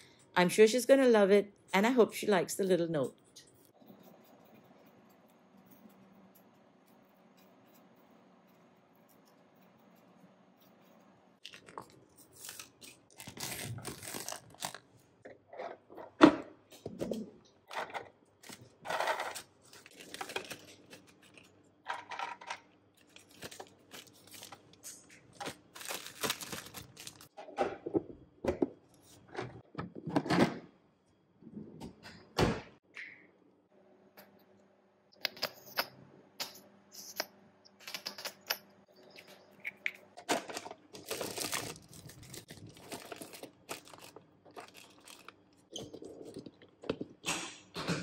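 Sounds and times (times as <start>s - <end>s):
plastic bag rustling: 11.4s - 14.9s, 18.4s - 21.5s, 23.0s - 24.7s, 25.3s - 27.3s, 41.0s - 45.4s.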